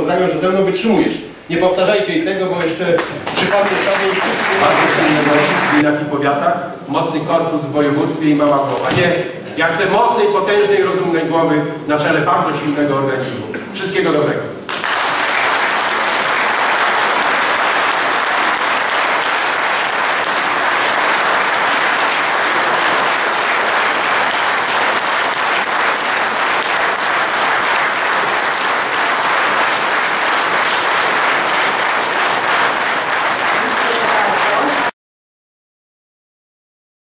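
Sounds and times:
audience applauding: 3.0s - 5.8s, 14.7s - 34.9s.

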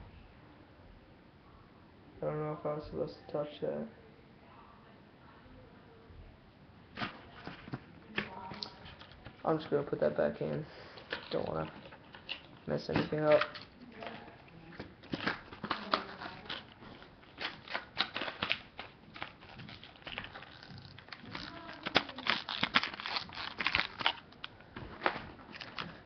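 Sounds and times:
plastic packaging crinkling: 7.0s - 26.0s.

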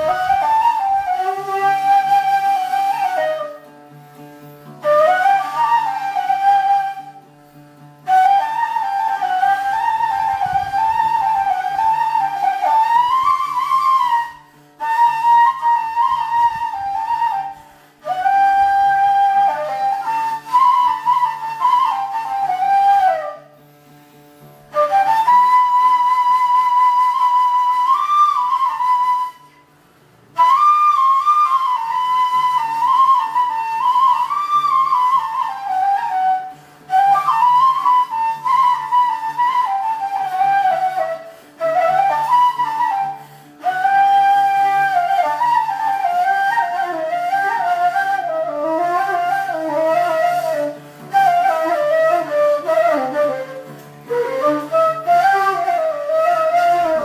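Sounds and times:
oud playing: 0.0s - 57.0s
reed flute melody: 0.0s - 57.0s.

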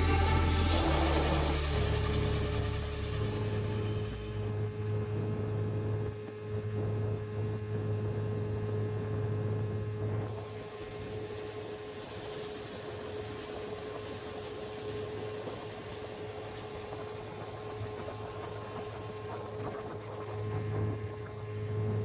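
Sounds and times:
water rushing: 0.0s - 4.2s
outboard motor running: 0.0s - 22.0s.

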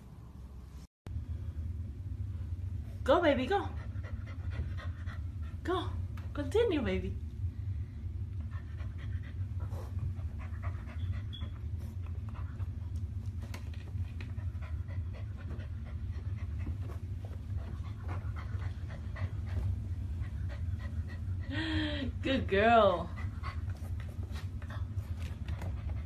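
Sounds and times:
low steady hum: 0.0s - 26.0s
puppy panting: 3.8s - 5.7s, 8.4s - 13.0s, 14.0s - 21.6s, 22.8s - 26.0s.

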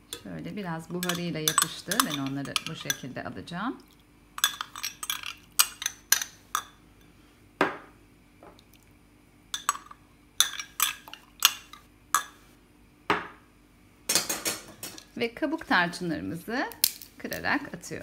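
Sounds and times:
metal spoon clinking on glass: 1.0s - 3.1s, 4.4s - 6.8s, 9.6s - 12.4s.

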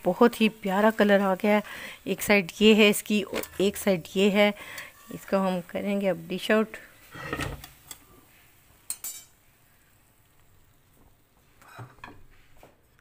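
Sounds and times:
metal spatula clinking: 8.9s - 9.3s.

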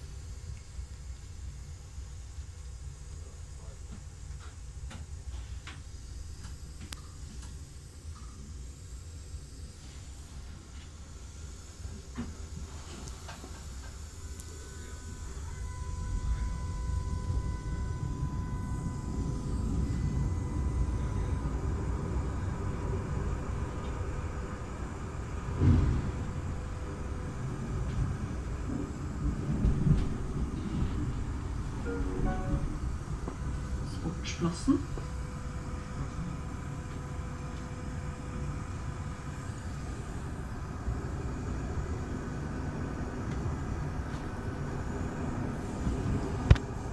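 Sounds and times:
faint steady whine: 0.0s - 46.9s
tram wheels rumbling: 15.2s - 46.9s.

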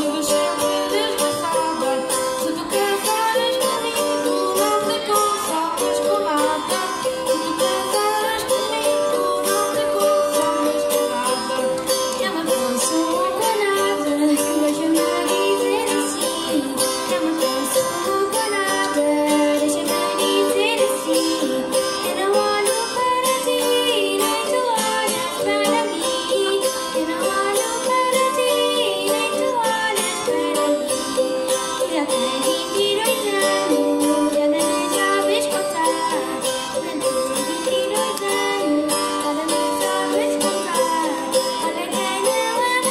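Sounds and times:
plucked string instruments strumming: 0.0s - 42.9s
people singing: 12.5s - 31.2s.

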